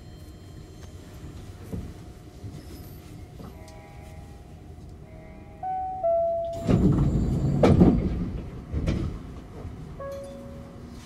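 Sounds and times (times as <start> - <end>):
stepped tone chime: 5.7 - 7.6
train doors sliding shut: 6.0 - 11.0.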